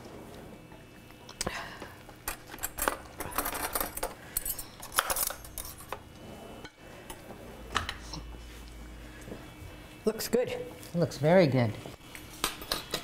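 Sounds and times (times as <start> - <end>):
cutlery clinks: 2.6 - 6.0.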